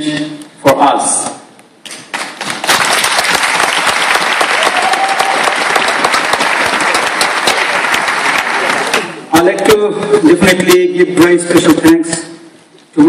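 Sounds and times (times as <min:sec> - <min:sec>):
audience applauding: 0:02.1 - 0:09.3.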